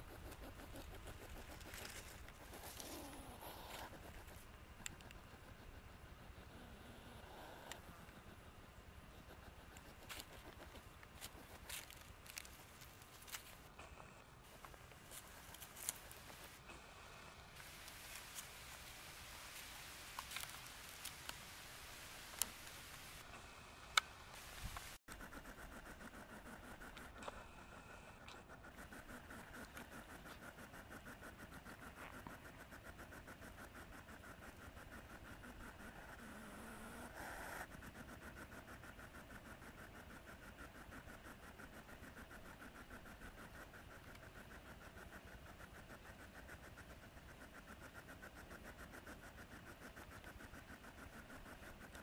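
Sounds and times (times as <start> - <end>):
dry grass crackling: 0.0 - 5.2, 9.4 - 13.8, 14.5 - 16.8, 17.6 - 23.3
faint hiss: 0.0 - 52.0.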